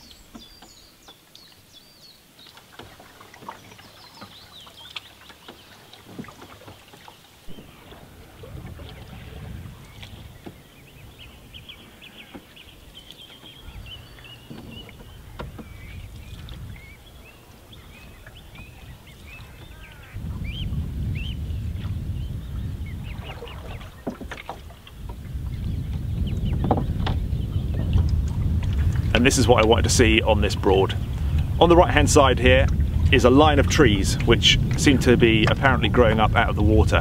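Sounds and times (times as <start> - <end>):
birds chirping: 0.0 - 37.0
wind rumbling on microphone: 5.5 - 37.0.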